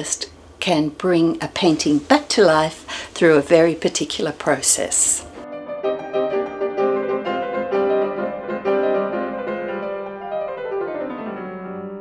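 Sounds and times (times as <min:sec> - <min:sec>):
piano music: 0:05.2 - 0:12.0.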